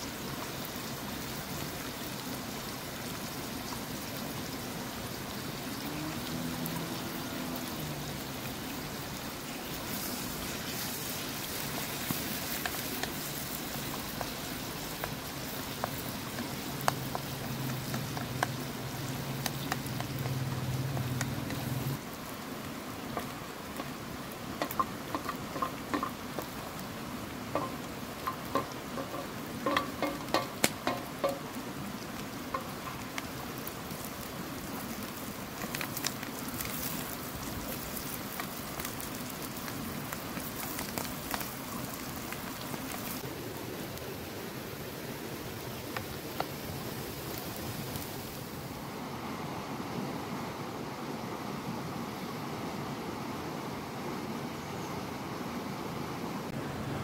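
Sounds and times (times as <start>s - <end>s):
filling sizzling in oil in pan: 0.0s - 48.8s
wooden spoon stirring: 24.6s - 26.7s, 27.5s - 31.5s.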